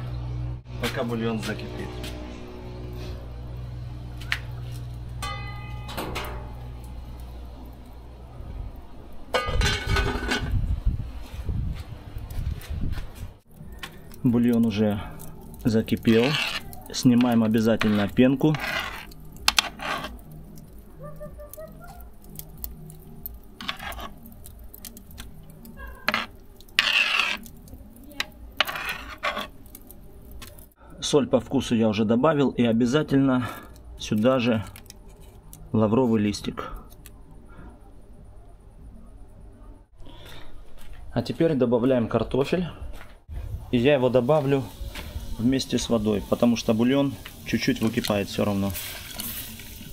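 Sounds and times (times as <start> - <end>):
metal pot lid ringing: 5.2 - 6.6
metal spoon scraping a pot: 9.4 - 10.6, 13.9 - 20.8, 22.2 - 30.6, 33.6 - 35.5
pot lid clattering: 9.4 - 10.6.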